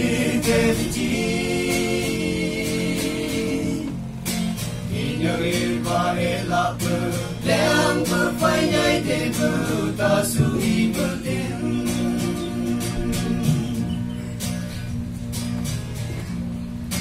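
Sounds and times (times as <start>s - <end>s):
young men singing together: 0.0s - 4.0s, 4.8s - 14.2s
strummed guitar: 0.0s - 17.0s.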